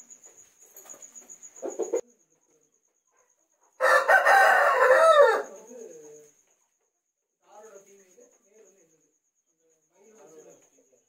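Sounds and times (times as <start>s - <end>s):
crickets chirping: 0.0s - 11.0s
rooster crowing: 3.8s - 5.9s.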